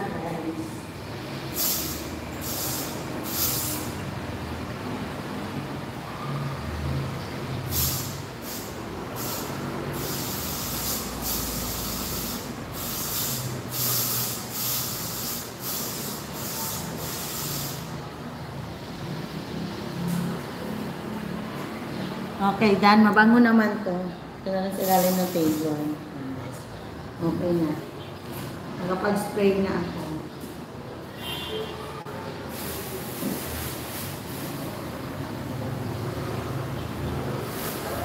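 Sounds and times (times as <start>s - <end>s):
aerosol spray can hissing: 1.6s - 4.0s, 7.7s - 18.0s.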